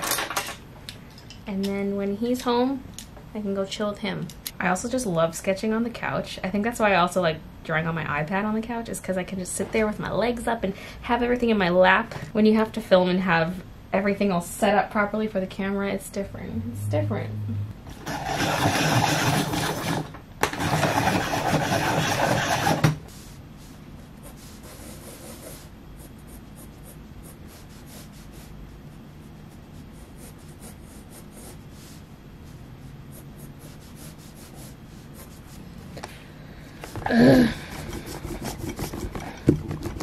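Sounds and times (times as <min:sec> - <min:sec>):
loud rubbing: 0:16.7 - 0:20.0
coloured pencil scratching on paper: 0:18.0 - 0:20.0, 0:20.6 - 0:23.2, 0:24.1 - 0:35.6, 0:37.6 - 0:40.0.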